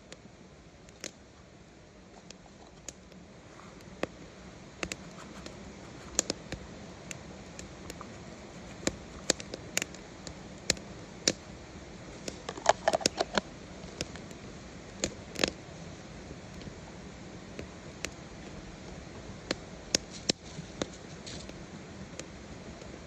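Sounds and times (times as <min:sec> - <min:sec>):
plastic container tapping and shaking: 0:12.3 - 0:13.4.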